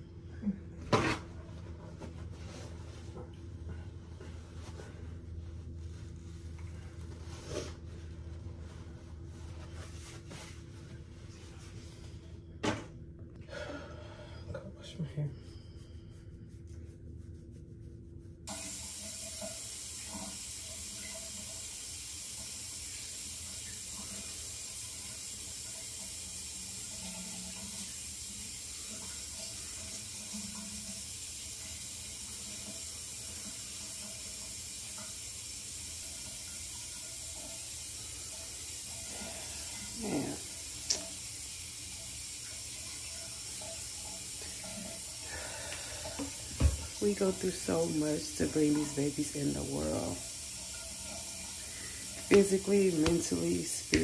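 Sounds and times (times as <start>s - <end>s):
running water hissing: 18.5s - 54.0s.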